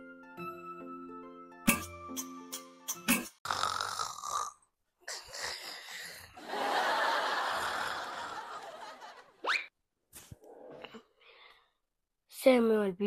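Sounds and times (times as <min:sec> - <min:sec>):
person snoring: 0:03.4 - 0:06.4, 0:07.5 - 0:08.4.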